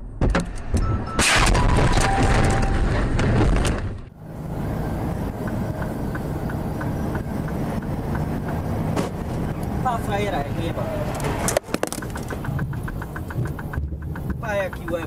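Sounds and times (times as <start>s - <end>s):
car crash crunching and scraping: 1.2s - 4.1s
engine and road noise inside car: 3.3s - 15.0s.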